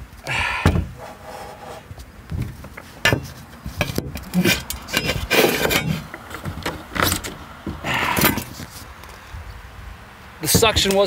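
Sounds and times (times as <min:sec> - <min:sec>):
plastic buckets knocking and scraping: 0:10.4 - 0:11.0.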